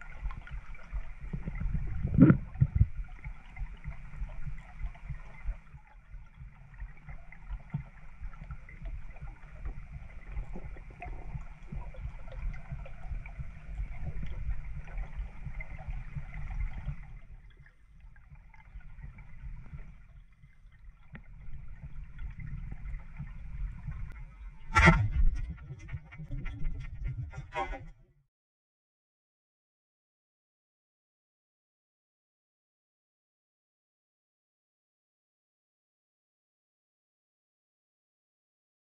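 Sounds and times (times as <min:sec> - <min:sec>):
muffled underwater rumble: 0:00.0 - 0:28.0.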